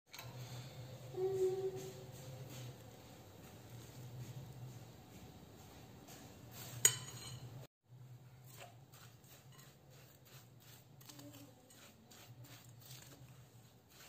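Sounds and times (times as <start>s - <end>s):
spoon scraping glass bowl: 6.7s - 7.5s, 8.5s - 14.0s.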